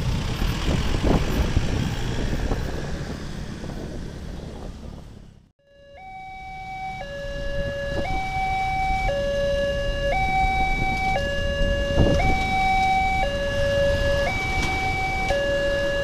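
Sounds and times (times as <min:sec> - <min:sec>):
road traffic rumbling: 0:00.0 - 0:16.0
two-tone crossing alarm: 0:05.6 - 0:16.0.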